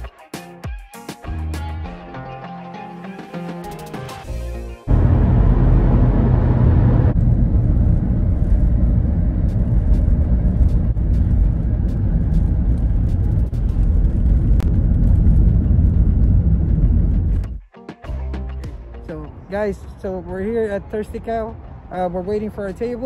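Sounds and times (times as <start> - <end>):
road and engine rumble in car: 4.9 - 17.6.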